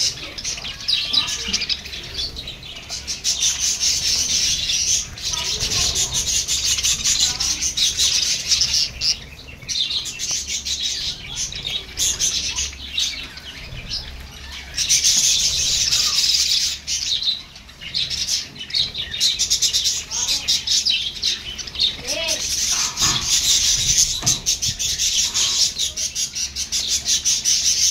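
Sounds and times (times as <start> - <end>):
budgerigars chattering: 0.0 - 27.9.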